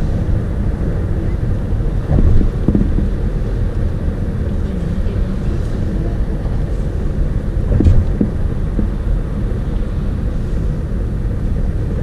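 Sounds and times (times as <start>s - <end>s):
car road rumble at highway speed: 0.0s - 12.0s
car bumps: 2.1s - 3.2s, 7.7s - 9.0s.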